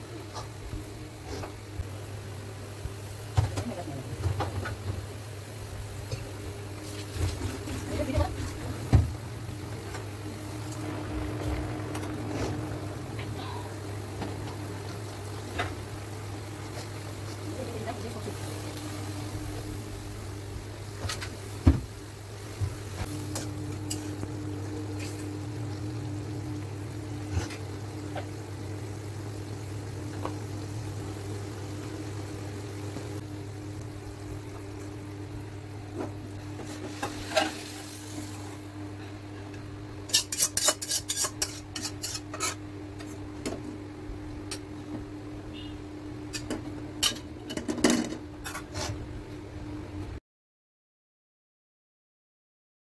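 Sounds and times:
faint sizzle: 0.0s - 50.1s
steady low hum: 0.0s - 50.2s
metal spoon scraping metal pot: 40.1s - 42.6s.

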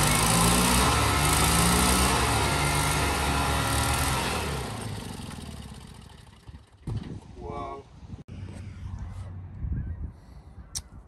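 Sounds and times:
engine running: 0.0s - 7.3s.

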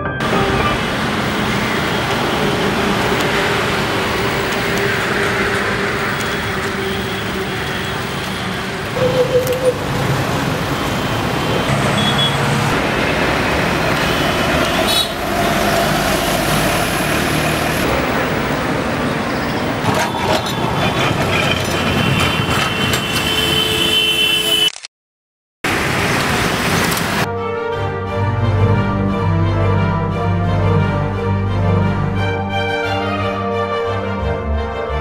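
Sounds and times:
passing road traffic: 0.2s - 24.6s, 25.7s - 27.3s.

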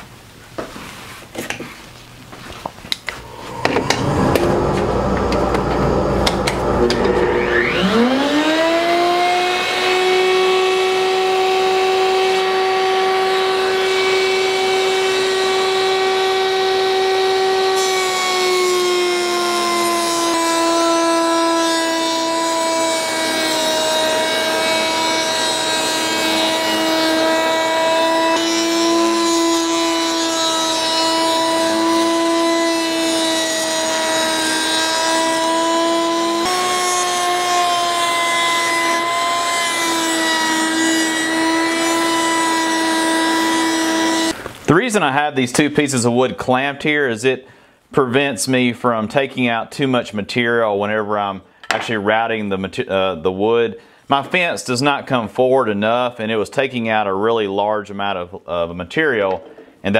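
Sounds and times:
router whining while cutting wood: 3.2s - 44.4s.

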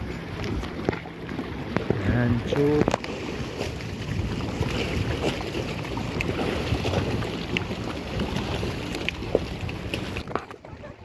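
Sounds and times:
water lapping clicks: 0.0s - 11.0s.

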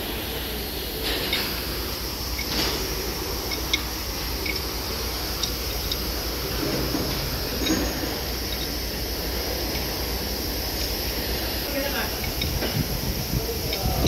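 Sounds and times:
low hum and hiss: 0.0s - 14.0s
faint metallic clinks: 7.5s - 8.8s.

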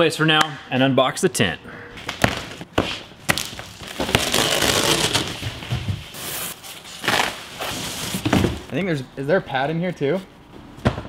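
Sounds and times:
plastic wrapping crinkling: 3.2s - 8.2s.

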